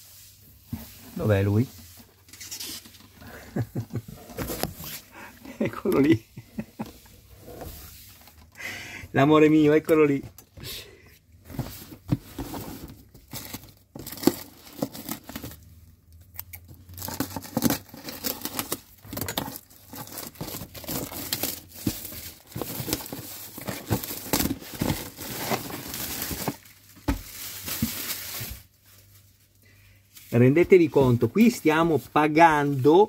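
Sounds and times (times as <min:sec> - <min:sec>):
plastic wrap crinkling: 0:16.8 - 0:29.6.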